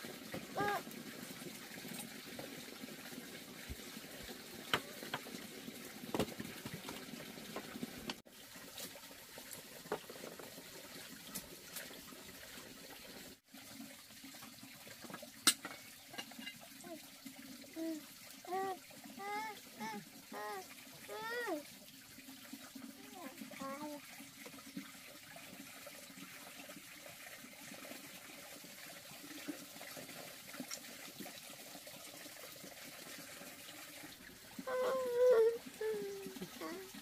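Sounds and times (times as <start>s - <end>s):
running water hiss: 0.0s - 37.0s
baby babbling: 0.6s - 0.8s, 17.8s - 21.6s, 23.0s - 24.0s, 34.6s - 37.0s.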